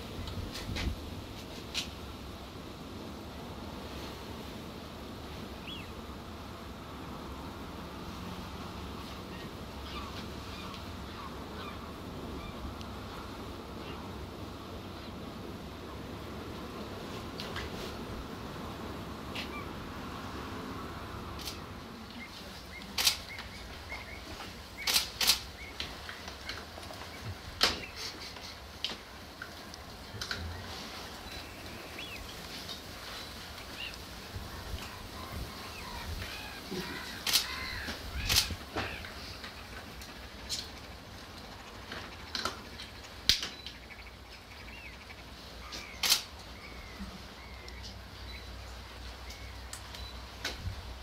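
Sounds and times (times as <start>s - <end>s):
sharp clicks: 22.8s - 23.6s, 24.8s - 27.0s, 37.2s - 40.7s, 42.2s - 43.8s, 45.8s - 46.5s.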